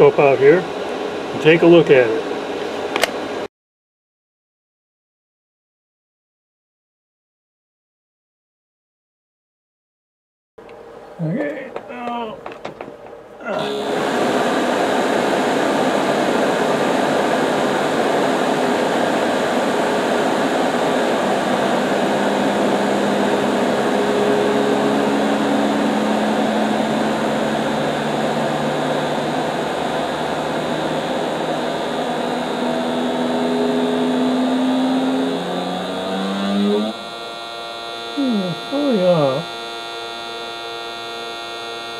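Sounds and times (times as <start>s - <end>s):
faint humming tones: 10.6s - 41.9s
blower motor rush of air: 13.5s - 41.9s.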